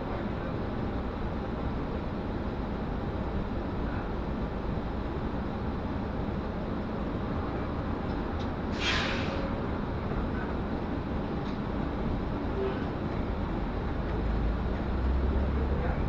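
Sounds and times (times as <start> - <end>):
bus interior rumble: 0.0 - 16.0
brief hiss: 8.7 - 9.5.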